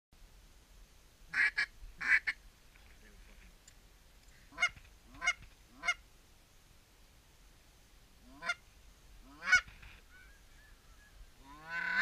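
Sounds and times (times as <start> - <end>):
goose honking: 4.5 - 6.0, 8.2 - 8.6, 9.2 - 10.3, 11.4 - 12.0.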